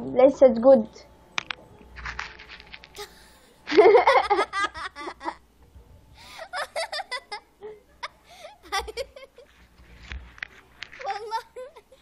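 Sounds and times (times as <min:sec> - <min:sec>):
person giggling: 0:03.0 - 0:05.4, 0:06.3 - 0:09.5.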